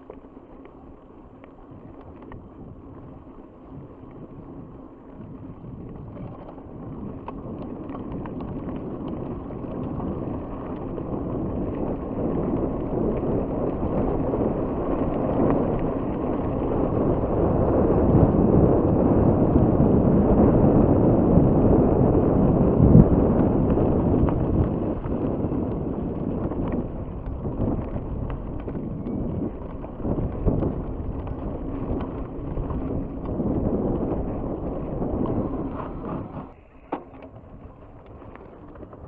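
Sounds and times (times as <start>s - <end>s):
bike tyres rolling on gravel: 0.0s - 39.0s
gravel clicks: 0.0s - 39.0s
wind on microphone: 1.5s - 39.0s.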